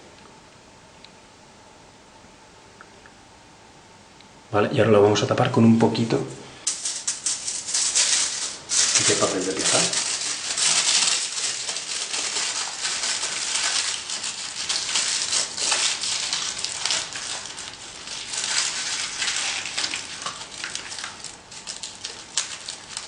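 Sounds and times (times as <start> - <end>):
aluminium foil crinkling: 6.0 - 23.0.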